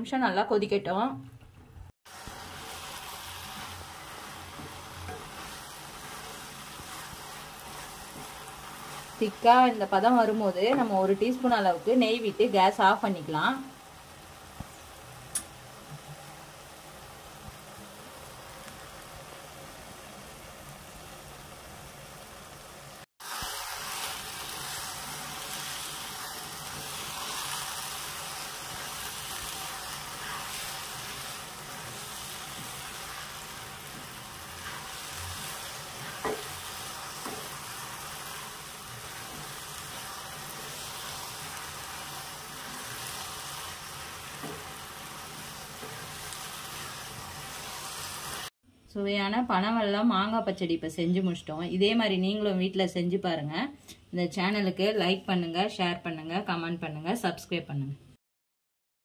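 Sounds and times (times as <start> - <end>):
thick sauce sizzling in a pan: 2.1 - 48.6.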